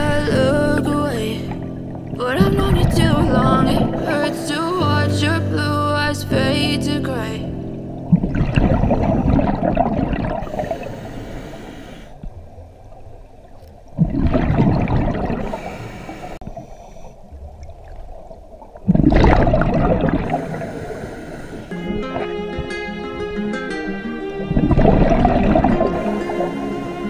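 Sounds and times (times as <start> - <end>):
underwater breath bubbling: 8.1 - 12.4, 14.0 - 18.0, 18.8 - 21.8, 24.6 - 27.0.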